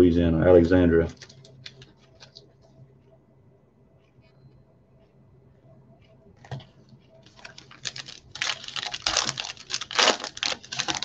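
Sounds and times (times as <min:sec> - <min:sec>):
foil wrapper tearing and crinkling: 0:07.4 - 0:11.0.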